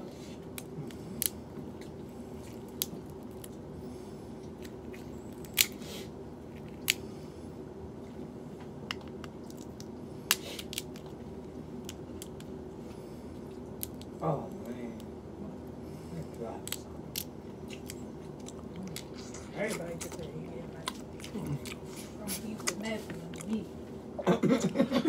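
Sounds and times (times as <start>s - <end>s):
steady low hum: 0.0s - 25.0s
shrimp shells cracking: 8.9s - 11.2s.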